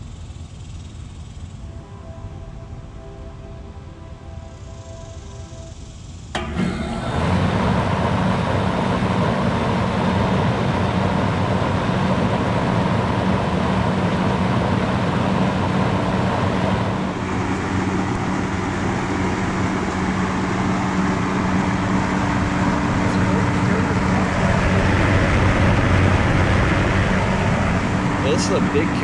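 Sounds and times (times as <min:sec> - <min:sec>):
compressor hum: 0:00.0 - 0:29.0
condenser fan air rush: 0:00.0 - 0:29.0.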